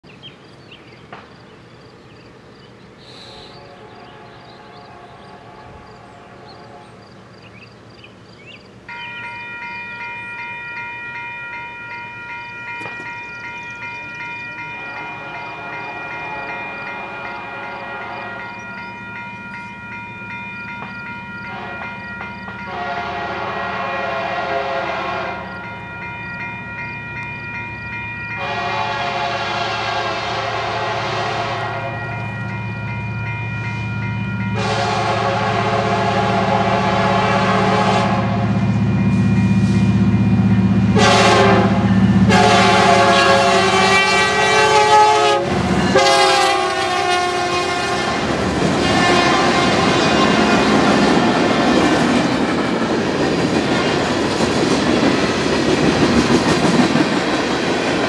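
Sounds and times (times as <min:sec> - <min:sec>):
locomotive horn blasts: 0:03.2 - 0:07.0, 0:14.6 - 0:18.8, 0:21.4 - 0:25.9, 0:28.3 - 0:32.6, 0:33.7 - 0:40.1, 0:40.8 - 0:51.1
railroad crossing bell ringing: 0:08.6 - 0:58.0.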